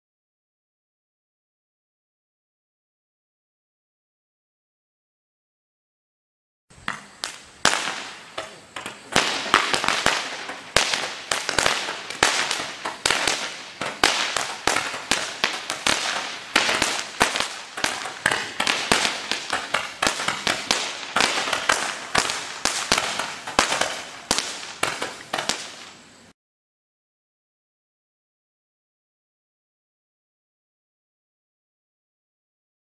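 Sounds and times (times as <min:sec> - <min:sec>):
firework snaps and pops: 0:06.7 - 0:26.3
firework fountain hiss: 0:06.7 - 0:26.4.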